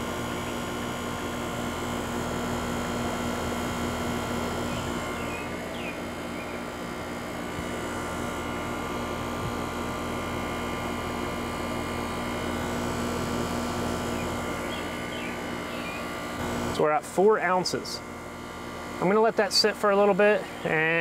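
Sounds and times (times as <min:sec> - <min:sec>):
compressor hum: 0:00.0 - 0:21.0
condenser fan noise: 0:00.0 - 0:21.0.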